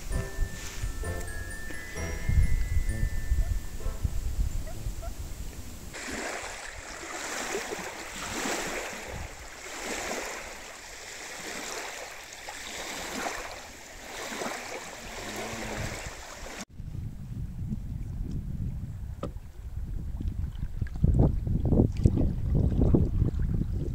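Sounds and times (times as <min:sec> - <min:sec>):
water splashing around canoe: 0:05.9 - 0:16.7.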